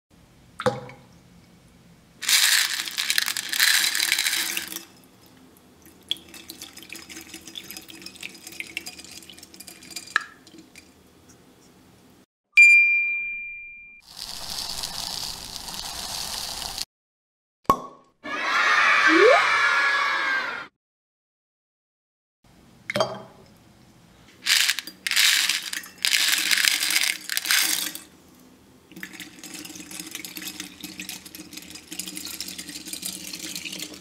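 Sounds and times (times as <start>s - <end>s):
water pouring into a glass bowl: 2.2s - 5.0s, 5.8s - 10.9s, 14.0s - 16.8s, 28.9s - 34.0s
bright ding: 12.6s - 14.0s.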